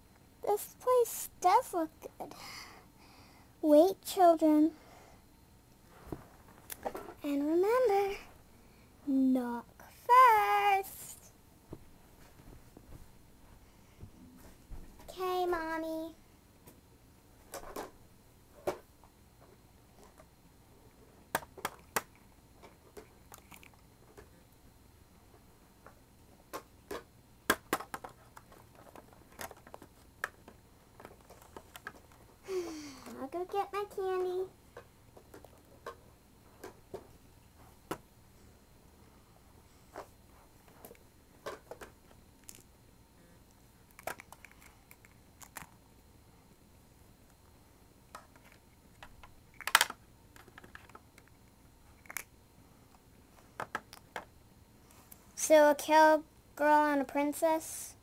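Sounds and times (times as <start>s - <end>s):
plastic toys clicking and tapping: 26.5s - 32.1s, 48.1s - 51.3s
plastic toys clattering: 27.6s - 32.2s.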